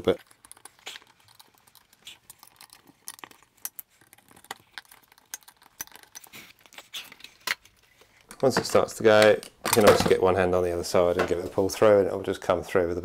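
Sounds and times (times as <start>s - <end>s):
screwdriver clicking and scraping: 0.2s - 8.3s.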